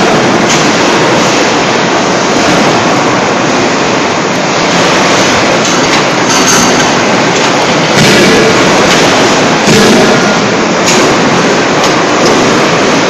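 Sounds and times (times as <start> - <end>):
forging hammers and presses din: 5.6 - 13.0.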